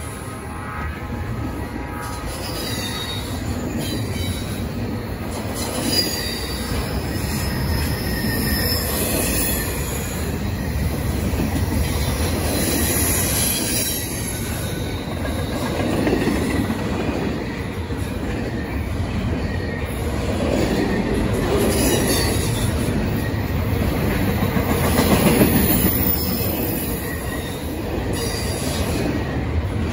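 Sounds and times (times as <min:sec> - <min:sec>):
steel wheels rumbling on rail: 0:00.0 - 0:29.9
high wheel squeal: 0:01.5 - 0:15.6, 0:25.2 - 0:29.6.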